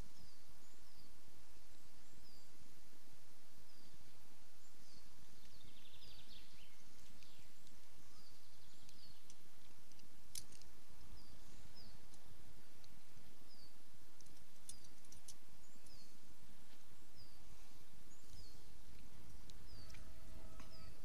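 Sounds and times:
small bird chirping: 3.6 - 21.0.

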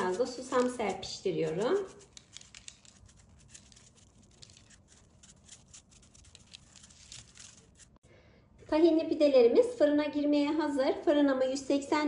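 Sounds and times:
seeds pattering onto dough: 0.0 - 7.9.

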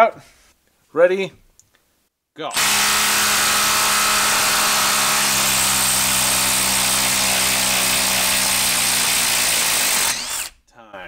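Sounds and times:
impact driver hammering: 2.5 - 10.5.

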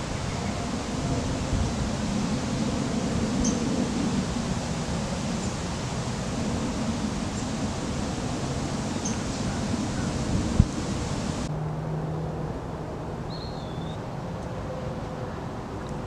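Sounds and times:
low rumble and hiss: 0.0 - 11.5
faint bird chirps: 13.3 - 14.0.

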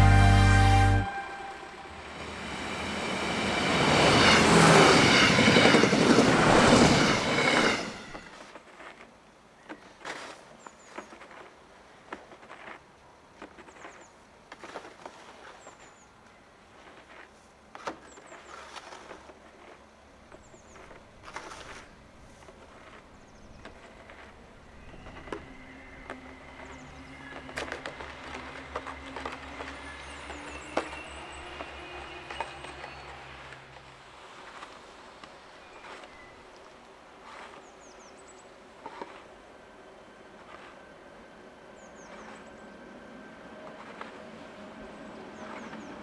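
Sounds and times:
electric train whine and hum: 0.0 - 8.5, 22.9 - 37.1, 38.4 - 46.0.

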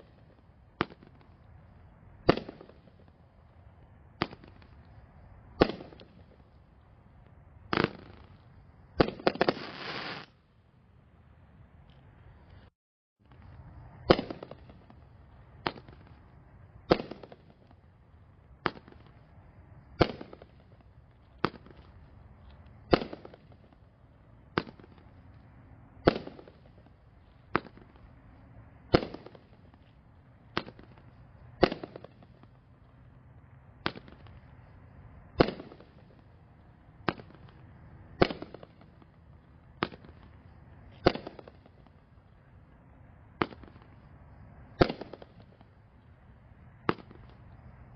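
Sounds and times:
firework bangs: 0.0 - 3.2, 4.1 - 6.6, 7.7 - 10.4, 13.3 - 17.9, 18.6 - 19.3, 19.9 - 25.3, 26.0 - 28.2, 28.8 - 32.9, 33.7 - 34.7, 35.3 - 42.5, 43.3 - 46.0, 46.8 - 47.7.

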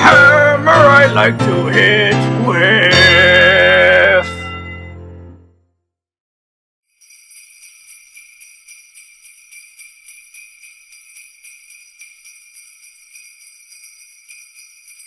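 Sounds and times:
jingle bells shaking: 6.9 - 15.0.

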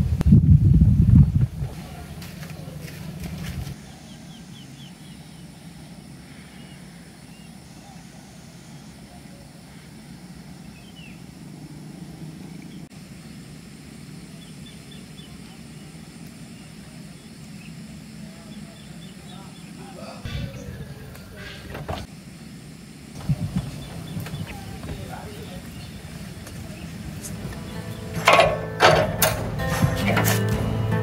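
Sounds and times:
low wind rumble: 0.0 - 22.3, 22.9 - 30.0
faint bird chirps: 3.8 - 13.3, 14.3 - 21.7, 23.5 - 27.0.

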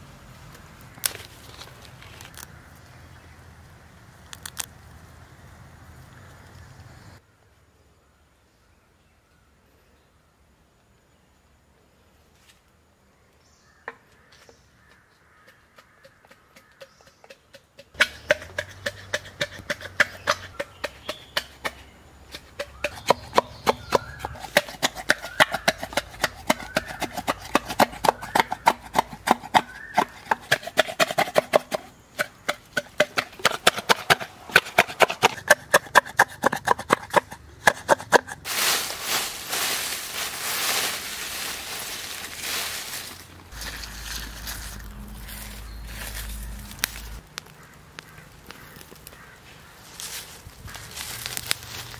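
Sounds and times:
knocks and taps on bamboo: 13.8 - 38.3
dry leaves rustling: 38.4 - 51.9.

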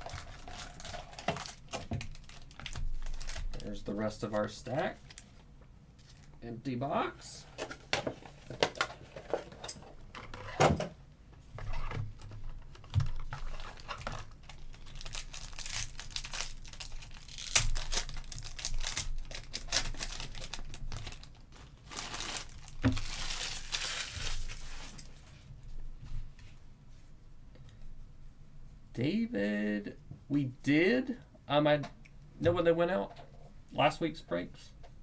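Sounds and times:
foil wrapper tearing and crinkling: 0.0 - 3.8, 13.4 - 25.1.

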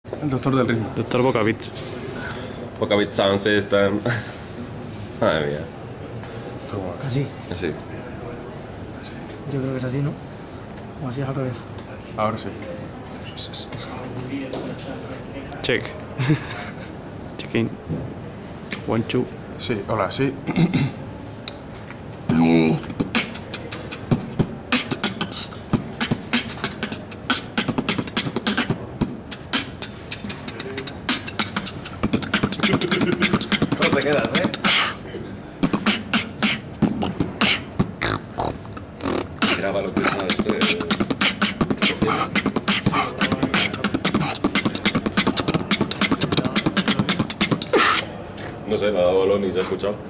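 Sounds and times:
person beatboxing: 22.2 - 48.6.

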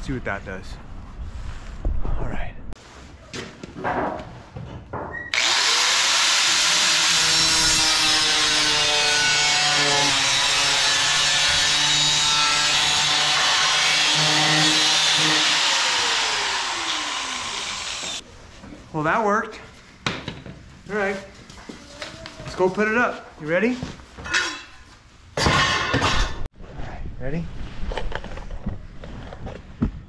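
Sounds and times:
angle grinder cutting sheet metal: 5.3 - 18.2.

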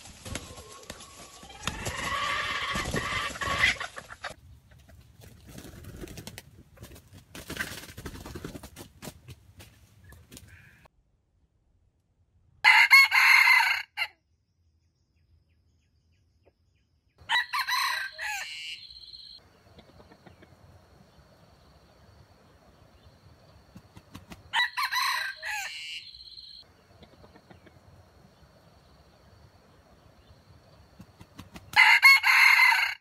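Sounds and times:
rooster crowing: 12.6 - 14.1, 17.2 - 19.4, 24.5 - 26.6, 31.7 - 33.0.

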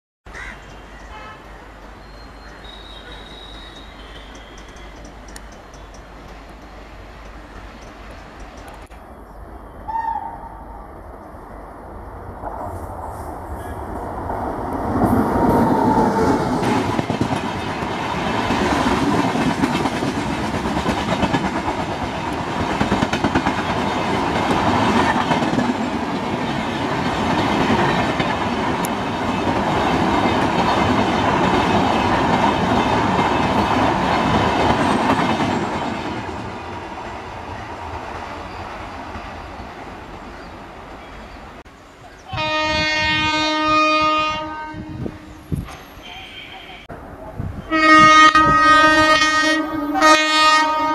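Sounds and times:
train passing at speed: 0.7 - 50.9
wheels clattering over rail joints: 3.3 - 8.9.

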